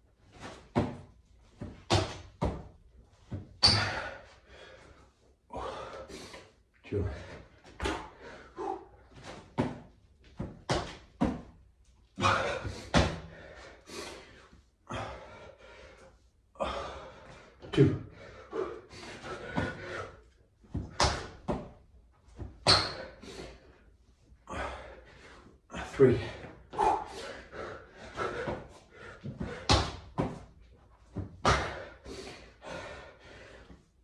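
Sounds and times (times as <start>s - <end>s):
hard breathing: 3.8s - 9.3s, 12.2s - 20.4s, 23.0s - 30.1s, 31.5s - 34.0s
hands and feet thudding on tiles: 9.2s - 11.6s, 28.2s - 31.9s.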